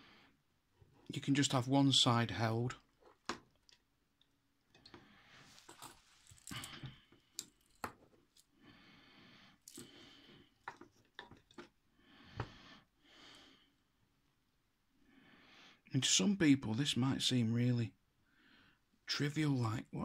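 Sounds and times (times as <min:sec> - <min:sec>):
wires and plastic plug handled: 0:05.6 - 0:08.5.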